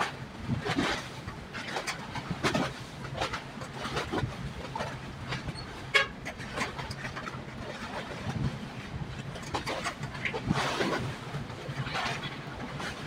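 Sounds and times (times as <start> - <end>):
rushing outdoor noise: 0.0 - 13.0.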